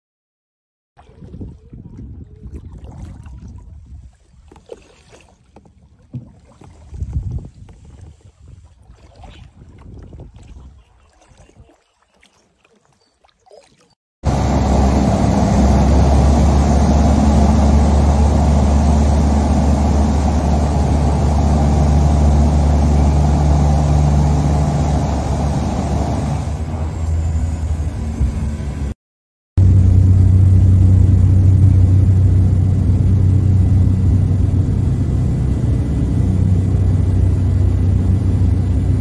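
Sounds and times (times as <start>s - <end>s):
propeller engine drone: 14.2s - 29.0s, 29.6s - 39.0s.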